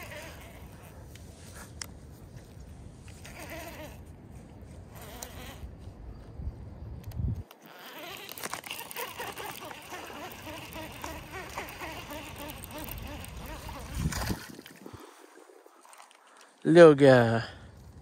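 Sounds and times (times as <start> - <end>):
fishing reel whirring: 0.0 - 0.9, 3.2 - 4.0, 4.9 - 5.6, 7.6 - 14.8
wind buffeting microphone: 11.2 - 15.8.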